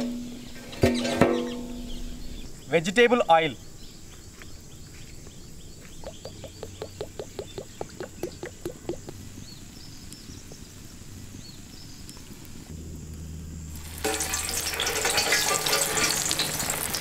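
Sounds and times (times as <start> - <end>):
oil glugging out of a jug: 5.9 - 9.2.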